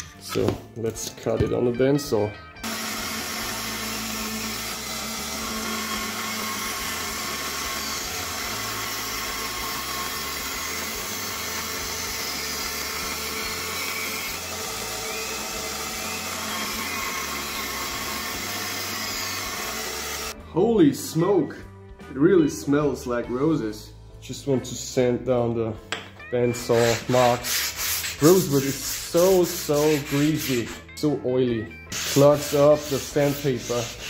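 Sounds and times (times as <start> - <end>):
bandsaw cutting wood: 2.6 - 20.4, 26.6 - 30.9, 31.9 - 34.0.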